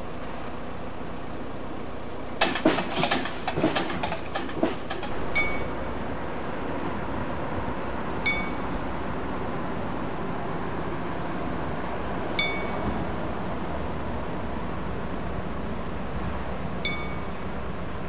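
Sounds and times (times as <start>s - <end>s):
small metal bell ringing: 5.4s - 5.7s, 8.2s - 8.6s, 12.4s - 12.8s, 16.8s - 17.3s.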